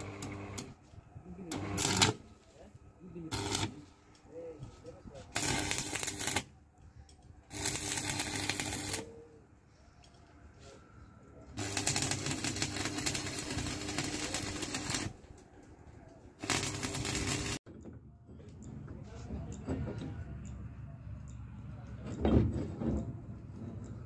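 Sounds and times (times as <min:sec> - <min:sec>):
welding arc crackling and sizzling: 0:00.0 - 0:00.7, 0:01.5 - 0:02.2, 0:03.3 - 0:03.9, 0:05.3 - 0:06.5, 0:07.5 - 0:09.1, 0:11.6 - 0:15.2, 0:16.4 - 0:17.6
welder hum: 0:00.0 - 0:00.8, 0:01.4 - 0:02.3, 0:03.2 - 0:04.0, 0:05.3 - 0:06.5, 0:07.5 - 0:09.3, 0:11.6 - 0:15.2, 0:16.4 - 0:17.6.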